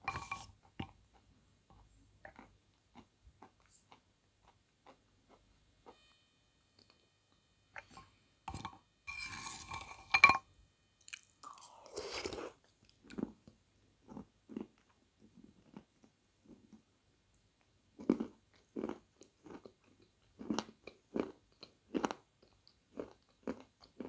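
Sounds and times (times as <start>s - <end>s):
spoon scraping ceramic bowl: 0.0s - 0.6s, 7.8s - 10.5s
soft chewing with mouth smacks: 0.6s - 6.0s, 11.0s - 24.0s.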